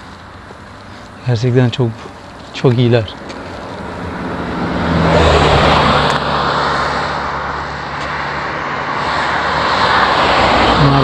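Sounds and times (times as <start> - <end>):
tyre and road noise: 0.0 - 11.0
vehicle engine hum: 0.0 - 11.0.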